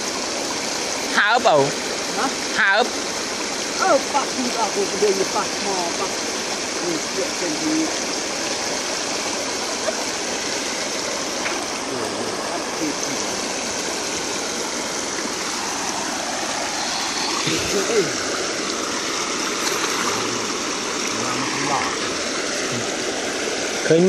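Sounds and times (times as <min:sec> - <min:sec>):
stream water rushing: 0:00.0 - 0:24.0.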